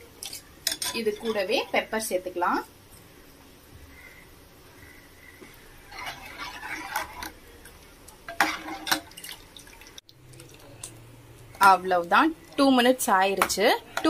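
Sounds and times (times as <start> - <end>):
ladle scraping a steel pot: 5.9 - 7.4, 8.3 - 9.3.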